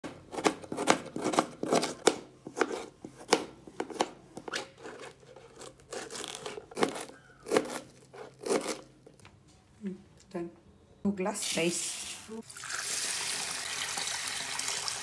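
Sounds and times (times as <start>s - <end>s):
knife chopping on plastic board: 0.0s - 8.8s.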